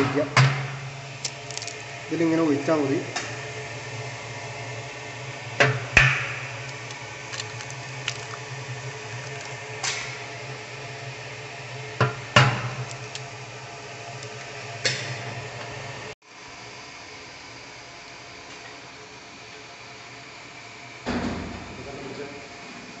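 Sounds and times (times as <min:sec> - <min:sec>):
steady low hum: 0:00.0 - 0:18.3.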